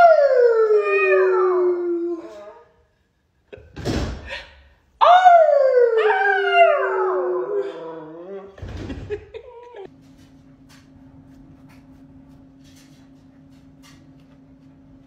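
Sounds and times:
dog howling: 5.0 - 8.5.

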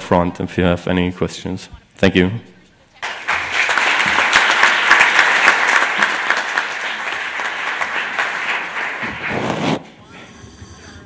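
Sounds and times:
audience applause: 3.0 - 9.8.

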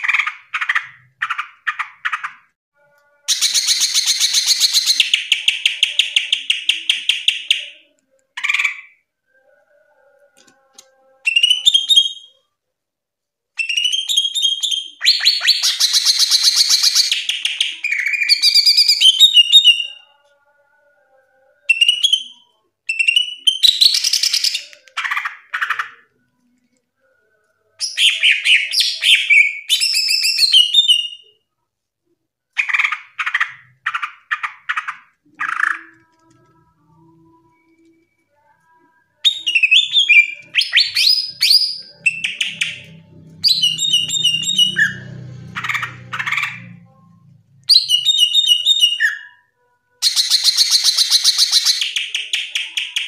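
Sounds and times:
bird singing chirps and trills: 39.3 - 46.8.

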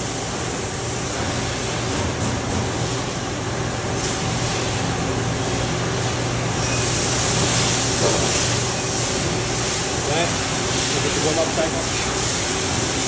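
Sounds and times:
coolant spraying hiss: 6.0 - 13.0.

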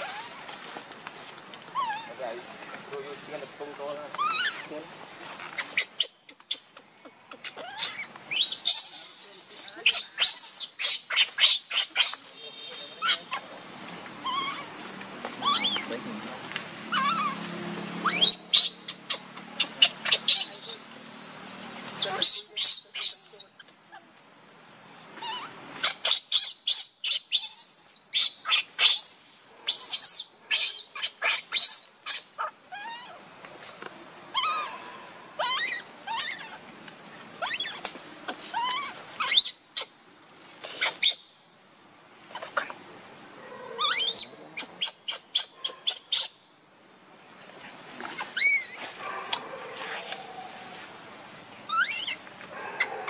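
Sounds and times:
high insect drone: 0.0 - 53.0
baby monkey crying: 1.7 - 2.2, 4.2 - 4.7, 7.3 - 13.4, 14.2 - 14.7, 15.4 - 15.9, 16.9 - 17.4, 18.0 - 23.6, 25.2 - 33.2, 34.3 - 34.8, 35.4 - 36.6, 38.5 - 39.9, 43.8 - 46.3, 48.4 - 48.8, 51.7 - 52.2.

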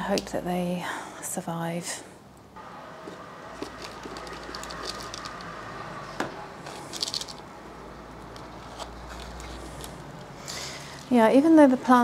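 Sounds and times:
potting soil rustling: 3.0 - 5.6.

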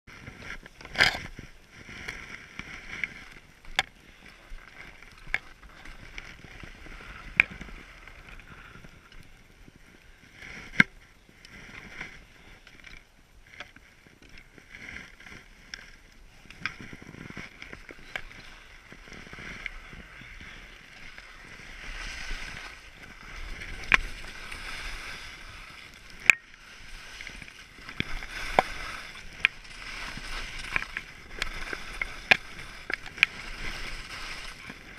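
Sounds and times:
wind: 0.0 - 34.9
ski poles clicking and knocking: 0.1 - 34.9
clothing rustling against camera: 14.5 - 34.9.

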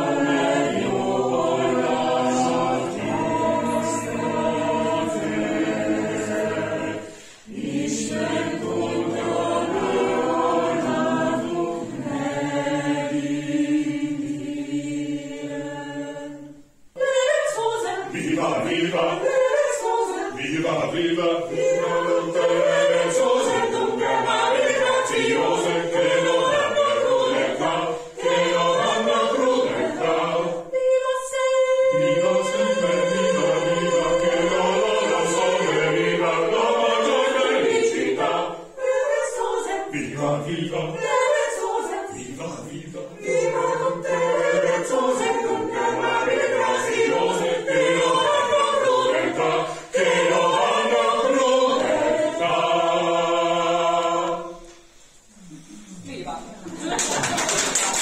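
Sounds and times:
mixed choir singing a cappella: 0.0 - 58.0.

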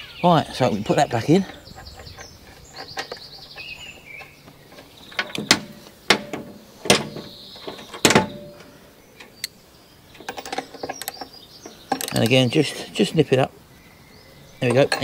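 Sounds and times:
sharp clicks and knocks of tools: 1.4 - 12.4, 14.6 - 15.0.

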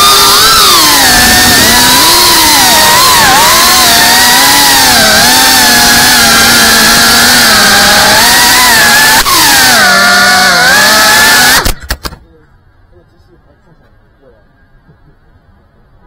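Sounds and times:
drone motors buzzing whine: 0.0 - 11.9.

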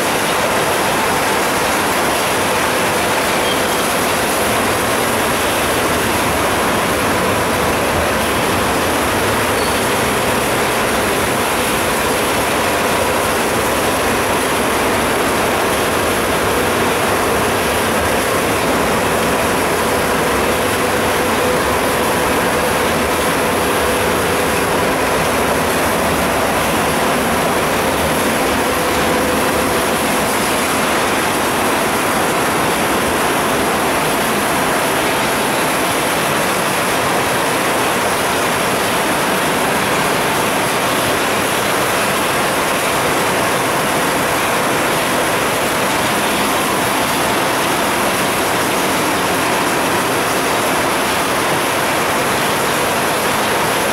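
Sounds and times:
industrial machinery din: 0.0 - 53.9.

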